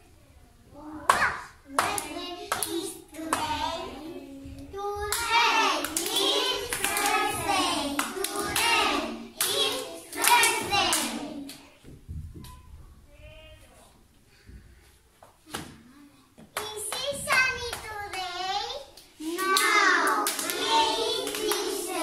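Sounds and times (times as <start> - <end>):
hand claps: 1.1 - 3.6, 5.1 - 11.7
children singing: 1.3 - 11.6, 19.2 - 22.0.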